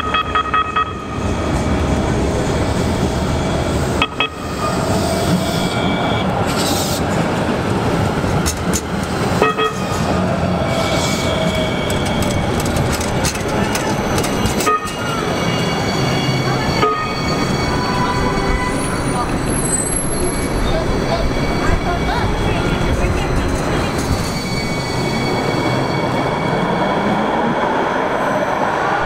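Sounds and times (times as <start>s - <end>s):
tram horn toots: 0.0s - 1.8s, 3.0s - 6.4s, 9.4s - 26.8s
tram rolling past: 0.0s - 29.0s.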